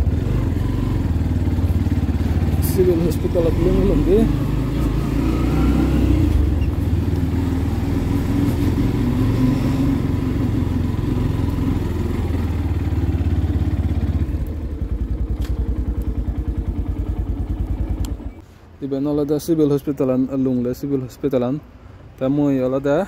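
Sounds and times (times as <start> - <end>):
motorcycle engine running: 0.0 - 18.4.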